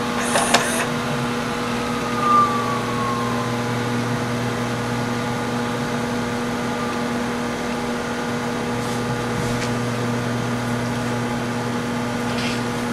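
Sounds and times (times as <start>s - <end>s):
tape deck winding whir: 0.0s - 12.9s.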